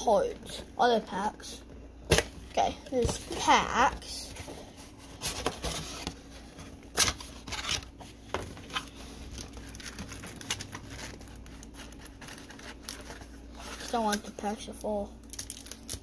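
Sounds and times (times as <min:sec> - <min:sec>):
cardboard rustling and scraping: 0:02.5 - 0:14.6.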